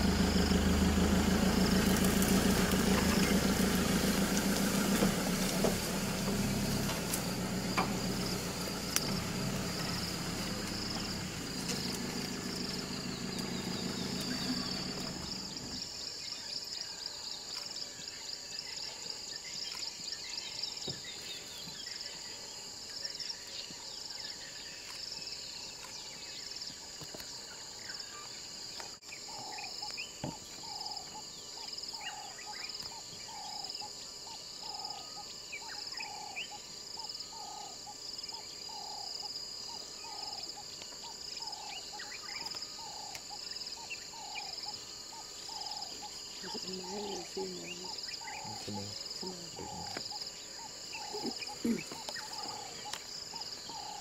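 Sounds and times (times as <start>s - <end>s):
high-pitched insect chorus: 0.0s - 54.0s
bird chirps: 19.4s - 54.0s.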